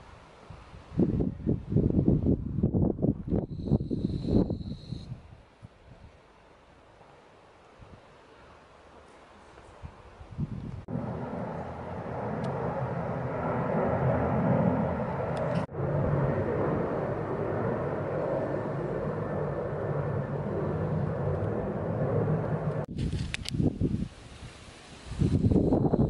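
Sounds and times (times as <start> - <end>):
engine drone: 10.9 - 22.9.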